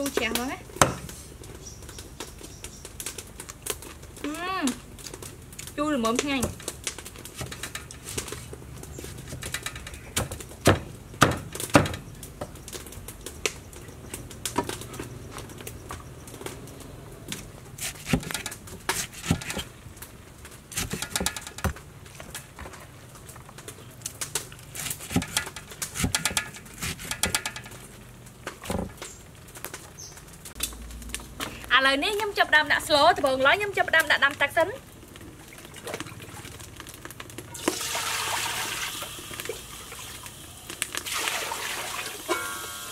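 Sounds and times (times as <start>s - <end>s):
birds chirping: 0.2s - 3.3s, 29.9s - 30.3s
knife chopping on wooden board: 17.8s - 19.7s, 24.8s - 27.6s.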